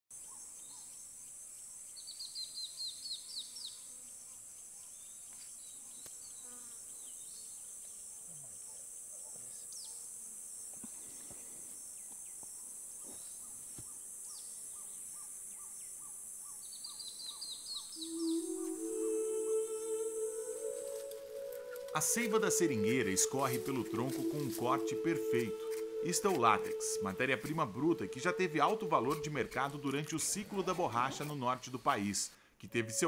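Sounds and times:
high insect drone: 0.2 - 32.2
bird calls: 12.0 - 31.6
bird singing high falling notes: 17.8 - 30.2.

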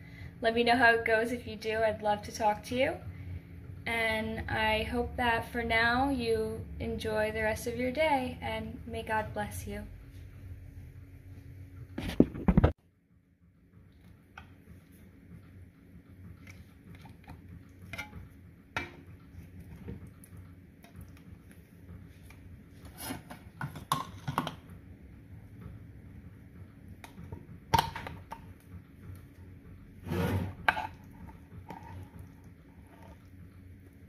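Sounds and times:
metal spatula scraping glass dish: 30.0 - 31.0.

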